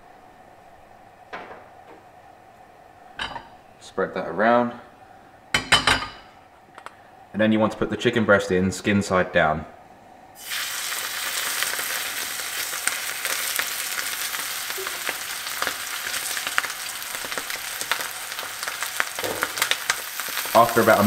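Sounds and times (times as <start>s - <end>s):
chicken sizzling in a frying pan: 10.4s - 21.0s.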